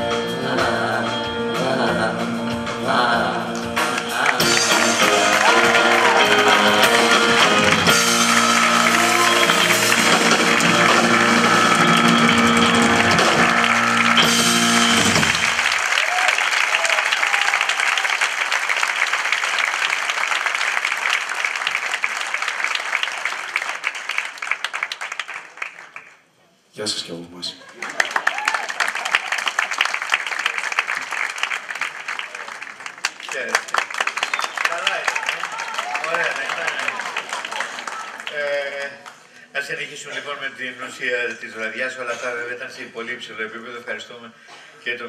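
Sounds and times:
rock band playing: 0.0s - 15.9s
audience applause: 3.8s - 26.3s, 27.6s - 39.5s.

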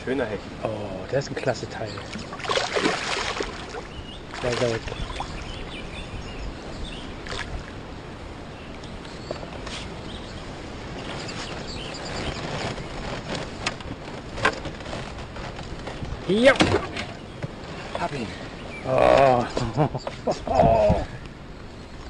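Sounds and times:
wind noise: 0.0s - 22.0s
water washing: 1.6s - 5.8s
fish splashing at surface: 2.2s - 5.0s.

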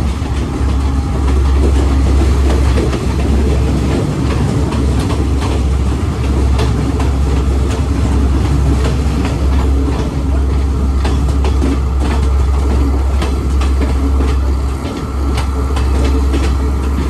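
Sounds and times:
train low rumble: 0.0s - 17.0s
wheel and carriage clicks and rattles: 0.0s - 17.0s.

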